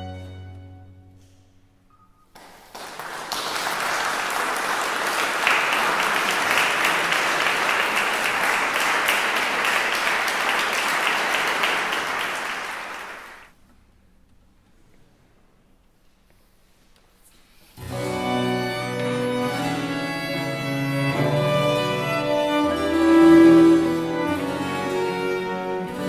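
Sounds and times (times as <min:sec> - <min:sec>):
audience applauding: 0:02.4 - 0:13.5.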